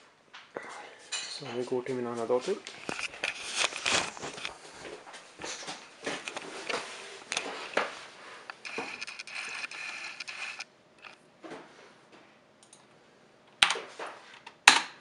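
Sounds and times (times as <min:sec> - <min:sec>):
steady high hiss: 0:00.0 - 0:11.2
camera handling rustling: 0:02.7 - 0:04.6, 0:06.0 - 0:11.2.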